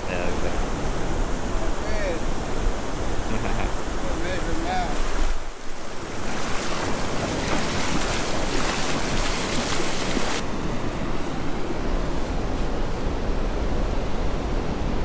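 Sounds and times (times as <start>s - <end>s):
waves washing: 0.0s - 15.0s
wind buffeting microphone: 0.0s - 15.0s
water splashing around legs: 6.0s - 10.4s.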